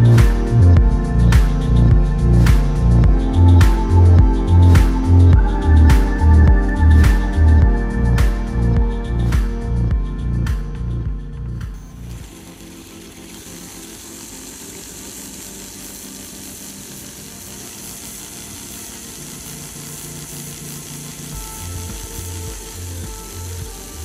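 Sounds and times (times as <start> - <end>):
gears whirring: 11.8 - 24.0
small electric motor whirring: 11.8 - 24.0.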